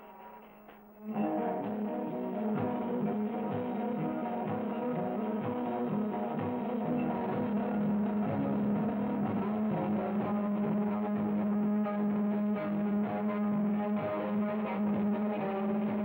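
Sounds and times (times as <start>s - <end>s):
electric guitar jam: 0.0s - 16.0s.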